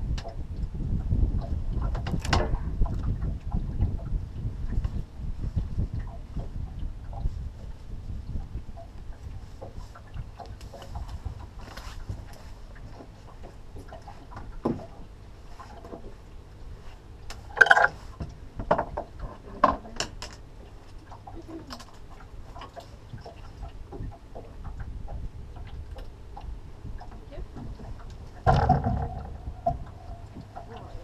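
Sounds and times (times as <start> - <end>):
fishing gear knocks and clunks: 17.5 - 20.4, 28.4 - 30.7.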